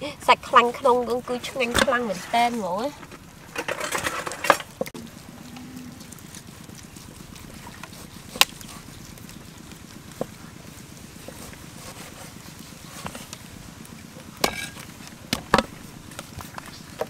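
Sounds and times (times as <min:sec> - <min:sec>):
low background noise: 0:00.0 - 0:17.0
cleaver chopping meat on wood: 0:14.4 - 0:15.8.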